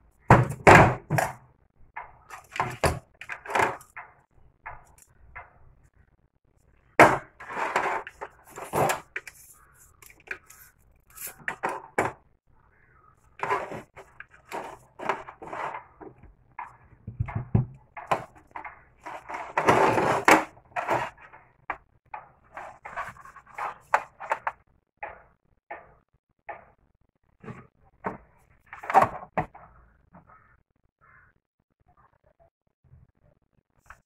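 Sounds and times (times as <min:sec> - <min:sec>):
gloved hands rubbing plastic: 0:07.4 - 0:12.0, 0:13.3 - 0:16.2, 0:22.5 - 0:24.4
plastic casing knocks and clicks: 0:16.0 - 0:18.7.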